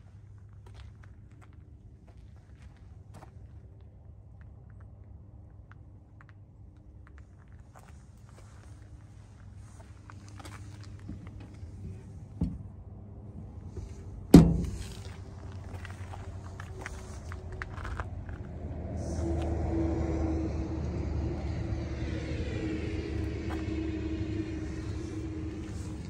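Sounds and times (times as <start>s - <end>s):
motor vehicle rumble: 0.0s - 26.0s
fuel filler door snapping shut: 14.3s - 15.0s.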